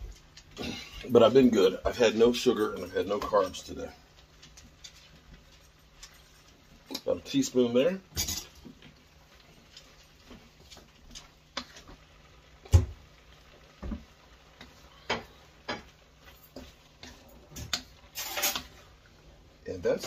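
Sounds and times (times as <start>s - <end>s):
faint sizzle: 0.0s - 20.0s
spatula scraping metal skillet: 17.0s - 19.0s.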